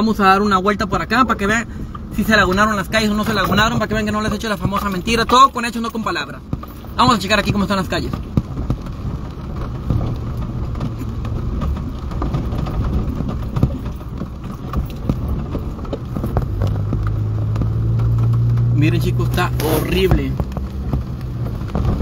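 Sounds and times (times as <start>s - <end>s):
engine humming low: 0.0s - 22.0s
rain tapping: 0.0s - 22.0s
wet tyres hissing: 15.2s - 22.0s.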